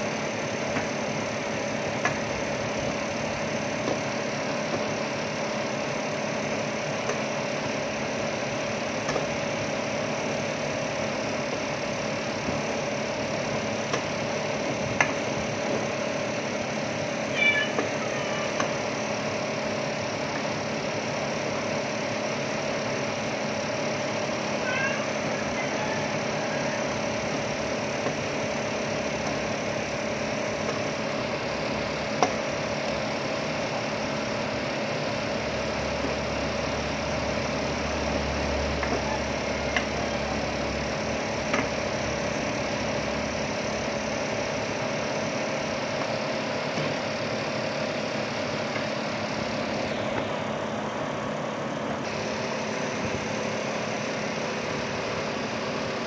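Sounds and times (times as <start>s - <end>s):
constant low hum: 0.0s - 56.0s.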